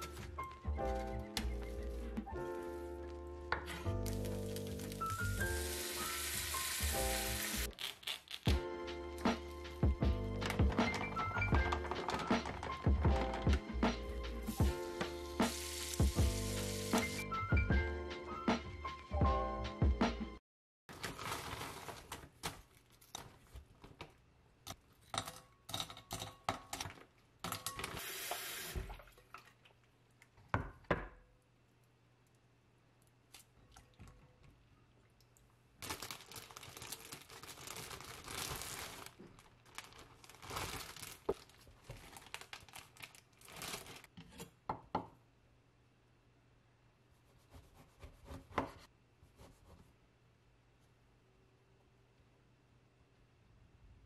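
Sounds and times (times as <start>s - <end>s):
plastic bag rustling and tearing: 3.7s - 6.7s, 10.4s - 12.9s, 20.9s - 23.5s, 35.8s - 44.1s.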